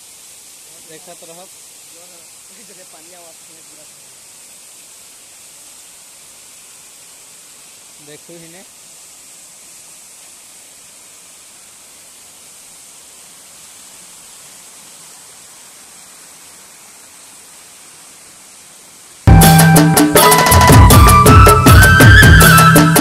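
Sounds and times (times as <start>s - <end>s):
waterfall rushing: 0.0s - 23.0s
loud folk music with drums: 19.3s - 23.0s.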